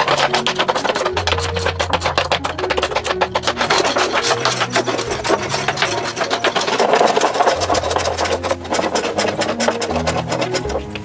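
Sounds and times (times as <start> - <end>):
blocks scraping wood: 0.0 - 11.0.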